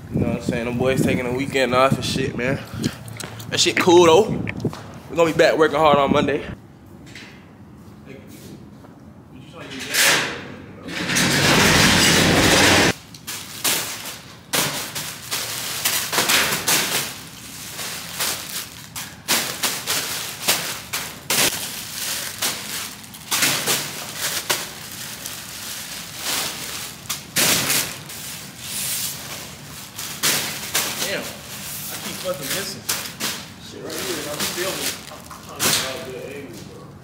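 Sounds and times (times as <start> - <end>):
loud rushing noise: 11.0 - 13.0
packages thudding into a bin: 11.8 - 36.2.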